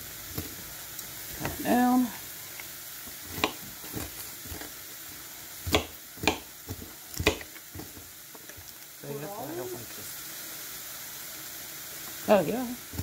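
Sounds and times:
knife chopping onion on board: 3.1s - 4.7s, 5.6s - 8.1s.

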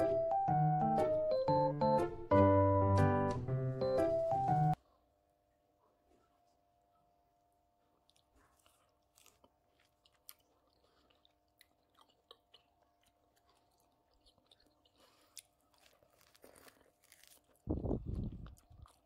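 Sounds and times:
faint chewing of orange: 5.8s - 19.0s.

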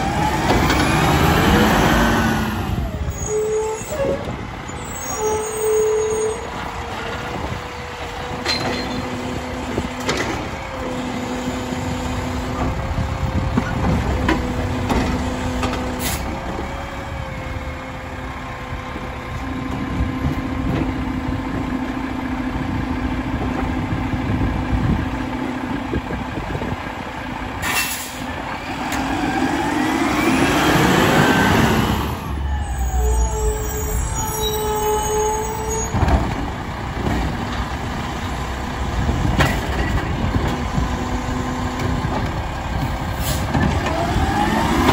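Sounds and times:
garbage truck running: 0.0s - 44.9s
high squeal: 3.0s - 6.6s, 32.3s - 36.0s.

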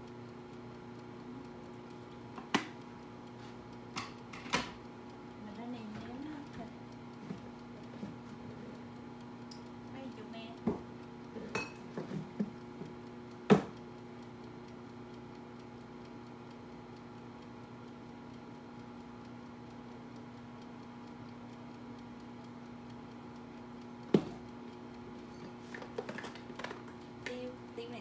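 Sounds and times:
kitchen timer ticking: 0.0s - 28.0s.

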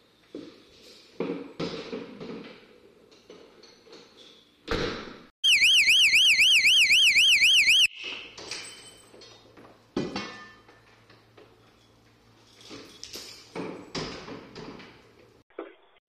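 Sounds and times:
electronic alarm siren warbling: 5.4s - 7.9s.

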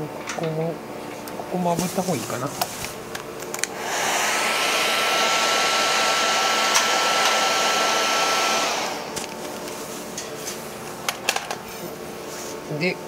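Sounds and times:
hair dryer blowing air: 3.6s - 9.4s.

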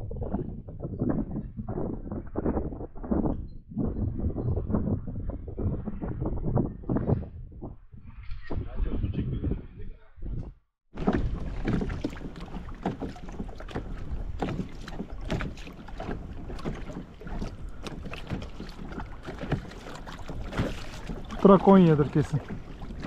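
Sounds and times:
wind buffeting microphone: 0.0s - 23.0s
water splashing against kayak: 10.9s - 23.0s.

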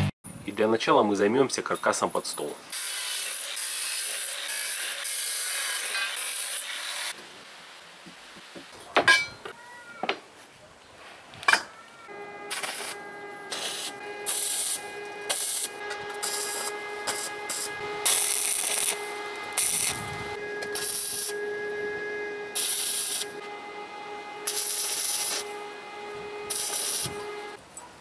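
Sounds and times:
arc welding hiss: 2.7s - 7.2s, 12.5s - 21.4s, 22.6s - 23.4s, 24.4s - 25.6s, 26.5s - 27.2s
steady hum: 12.1s - 27.6s.

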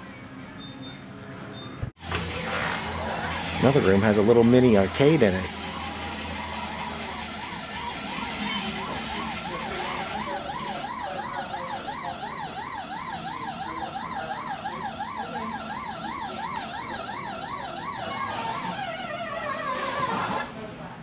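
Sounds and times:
electronic siren yelping: 2.4s - 20.5s.

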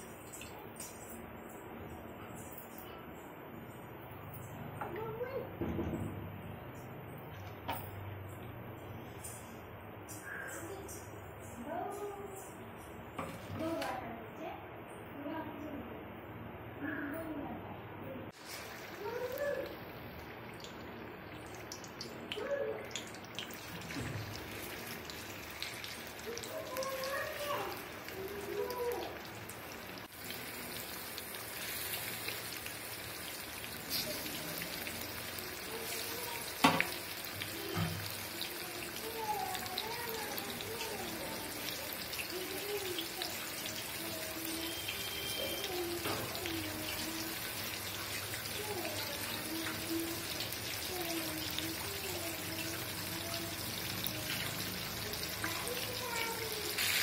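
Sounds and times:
prawns sizzling in hot oil: 18.3s - 57.0s
oil crackles and pops: 55.2s - 57.0s.

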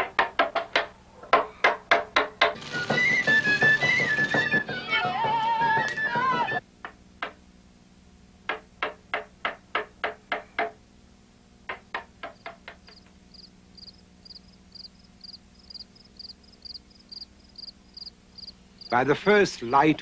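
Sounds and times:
sharp knocks: 0.0s - 5.3s, 8.5s - 10.8s, 11.7s - 13.1s
music: 1.9s - 6.6s
crickets chirping: 12.4s - 19.0s.

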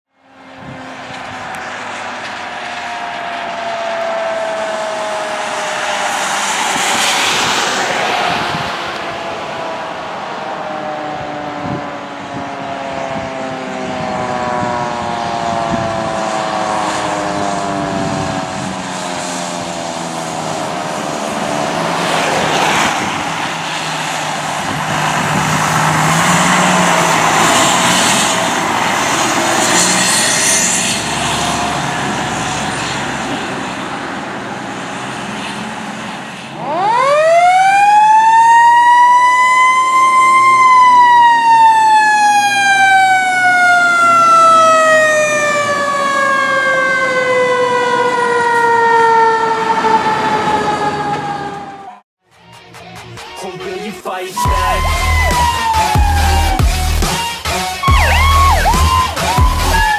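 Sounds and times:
fire engine siren wailing: 0.1s - 52.1s, 54.4s - 59.9s
truck engine passing: 0.2s - 52.0s, 54.4s - 59.9s
tyres hissing on wet road: 21.1s - 36.5s.

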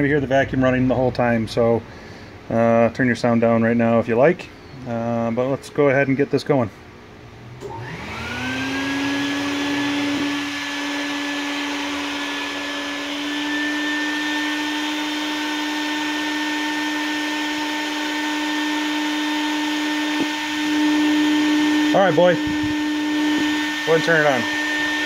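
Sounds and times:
shop vacuum motor whining: 7.4s - 25.0s.

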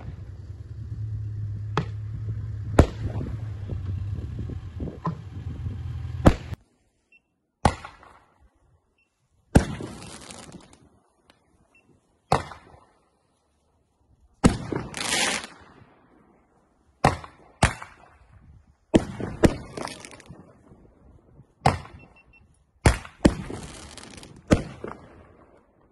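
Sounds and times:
steady low hum: 0.0s - 6.6s
firework bangs with fizzing hiss: 9.5s - 10.8s, 14.4s - 15.6s, 22.9s - 25.0s.

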